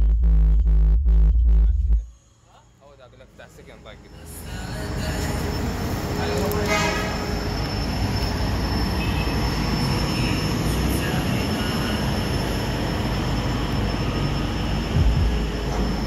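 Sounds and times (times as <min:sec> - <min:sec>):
bass-heavy subwoofer rumble: 0:00.0 - 0:02.1, 0:14.9 - 0:15.6.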